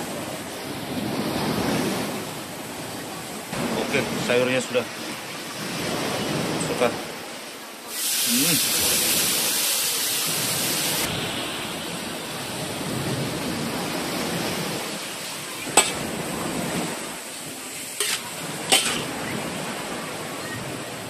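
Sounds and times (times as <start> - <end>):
food sizzling in a hot wok: 7.9 - 11.1, 17.7 - 19.0
metal spatula clinking against wok: 18.0 - 19.0.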